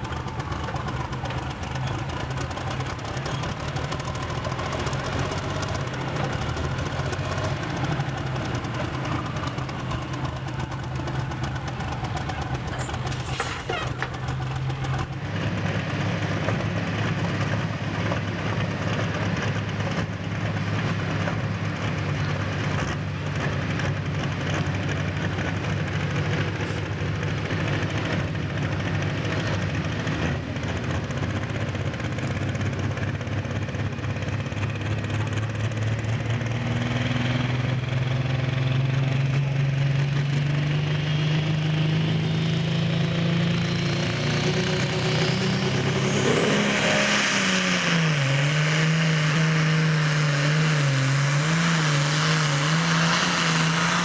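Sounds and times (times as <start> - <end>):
tractor engine idling: 0.0 - 36.6
tractor engine running: 0.0 - 54.0.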